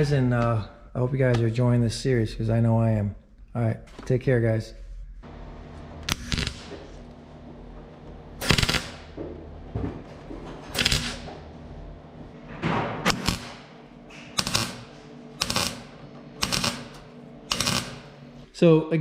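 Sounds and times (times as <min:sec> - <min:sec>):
welder crackling bursts: 0:05.2 - 0:09.2, 0:10.7 - 0:12.4, 0:13.0 - 0:18.5.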